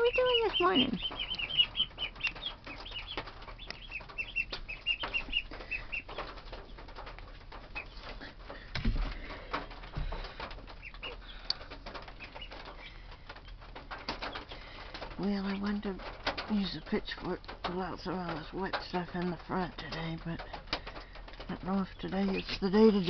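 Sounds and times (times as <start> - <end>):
clicks and rustles: 0.0 - 23.0
ducklings peeping: 0.0 - 23.0.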